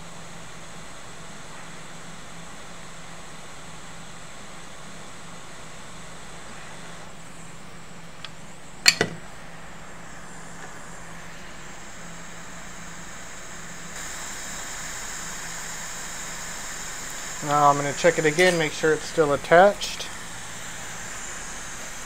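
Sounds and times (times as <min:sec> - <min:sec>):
equipment hum and hiss: 0:00.0 - 0:22.0
tool double click: 0:08.8 - 0:09.2.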